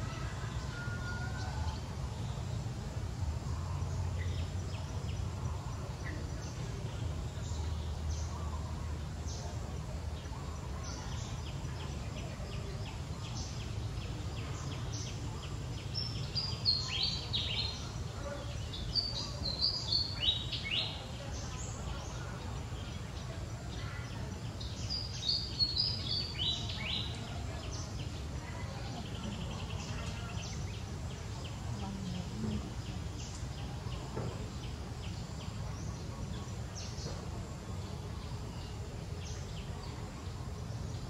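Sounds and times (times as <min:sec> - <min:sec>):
birds chirping: 0:00.0 - 0:41.0.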